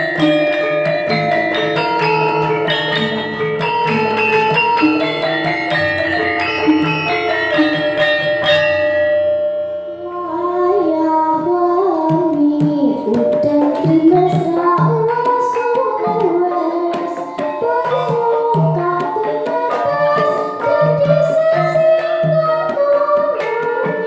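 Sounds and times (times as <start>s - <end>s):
struck metal instrument tones: 0.0s - 24.0s
girl singing into a microphone: 10.0s - 24.0s
hand drum strokes: 12.0s - 24.0s.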